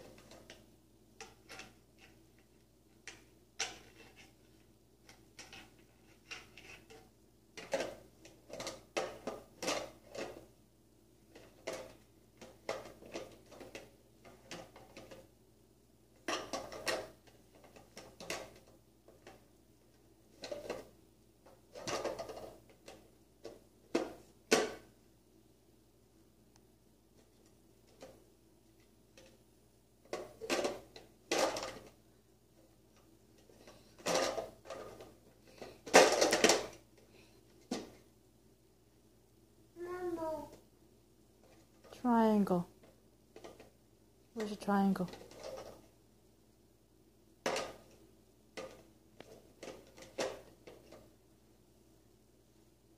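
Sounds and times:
plastic blocks clattering: 1.2 - 10.5, 11.3 - 15.3, 16.2 - 19.4, 20.3 - 20.9, 21.5 - 24.8, 30.1 - 32.0, 33.4 - 36.8, 44.4 - 45.9, 47.4 - 48.0, 48.6 - 51.1.

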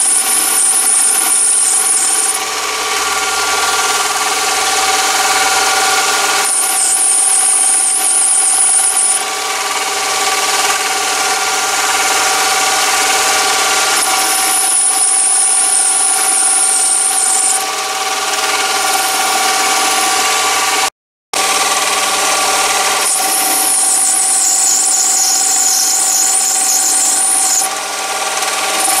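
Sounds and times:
high wavering cutting squeal: 0.0 - 29.0
lathe motor whine: 0.0 - 29.0.

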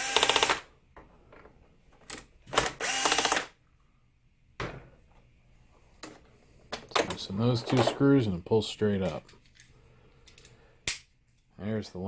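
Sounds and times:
cordless drill whining: 0.0 - 0.6, 2.7 - 3.5.

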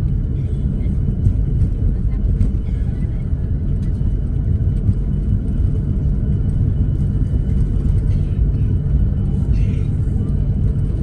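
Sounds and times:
airplane cabin engine rumble: 0.0 - 11.0.

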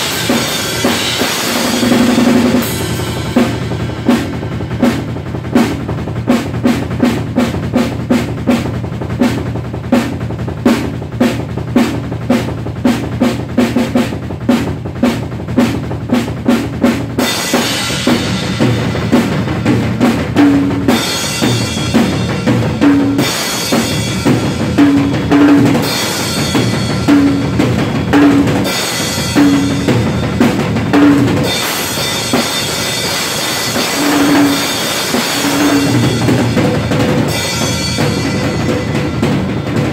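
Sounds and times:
cymbals crashing: 0.0 - 5.1, 31.4 - 39.6
drum kit played fast: 0.0 - 39.9.

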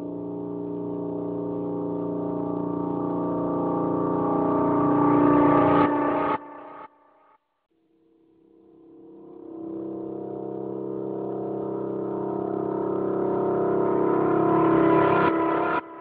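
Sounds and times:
steady drone of held pitches: 0.0 - 6.9, 8.8 - 16.0.

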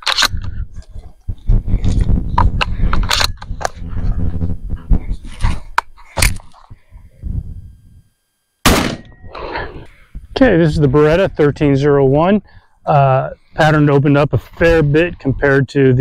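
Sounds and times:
shotgun handling clicks: 0.0 - 0.4
shotgun shots: 8.6 - 9.2.

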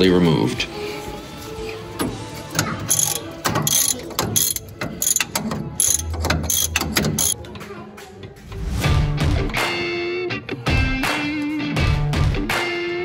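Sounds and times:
ratcheting wrench clicking: 2.5 - 7.4.

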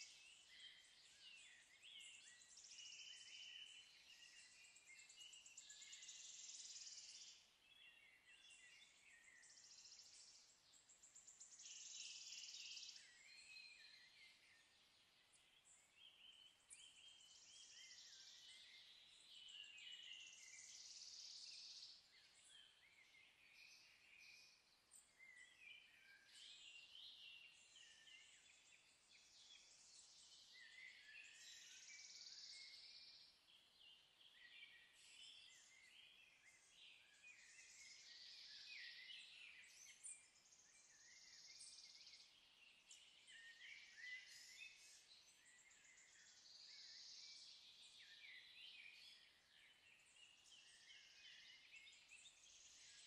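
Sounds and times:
birds chirping and trilling: 0.0 - 53.0.

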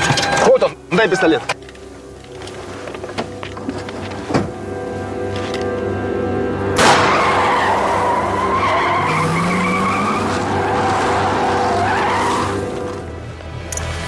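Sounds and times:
tyres squealing: 7.1 - 13.0.

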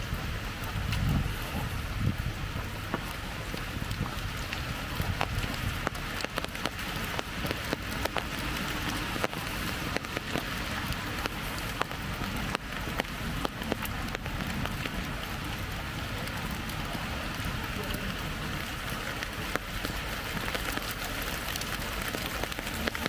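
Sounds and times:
low rumble: 0.0 - 19.5
raindrops tapping on umbrella: 0.0 - 23.0
steady rain patter: 0.0 - 23.0.

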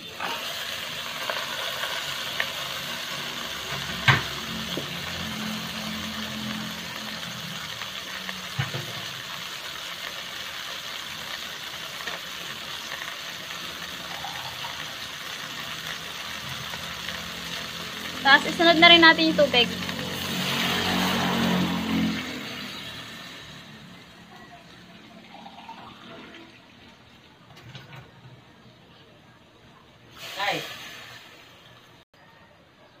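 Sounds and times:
fish sizzling in a pot: 0.0 - 26.8, 30.1 - 32.0.

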